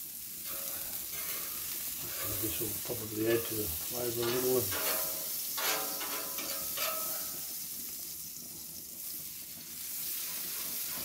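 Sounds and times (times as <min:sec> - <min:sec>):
butter sizzling on a griddle: 0:00.0 - 0:11.0
spatula spreading on metal: 0:00.5 - 0:02.7, 0:04.1 - 0:07.3.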